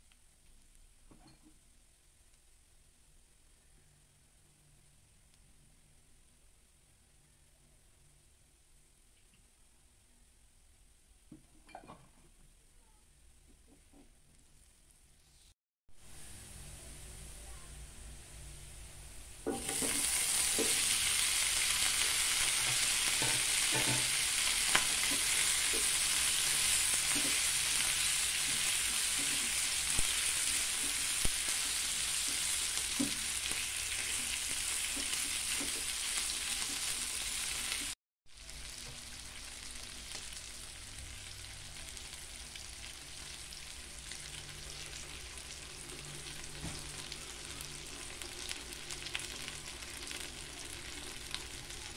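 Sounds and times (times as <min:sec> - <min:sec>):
food sizzling in hot oil: 0:18.5 - 0:51.9.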